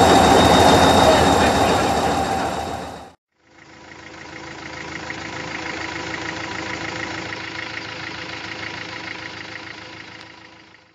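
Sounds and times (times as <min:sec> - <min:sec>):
engine idling: 0:00.0 - 0:10.9.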